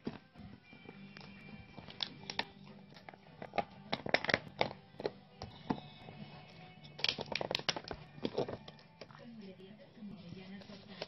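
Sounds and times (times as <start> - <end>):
faint background music: 0.0 - 11.0
plastic bottle clicking: 3.4 - 5.8, 6.9 - 9.1.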